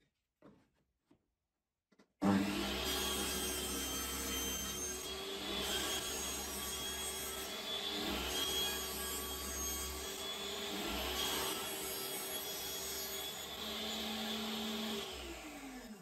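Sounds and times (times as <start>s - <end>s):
table saw ripping wood: 2.2s - 16.0s.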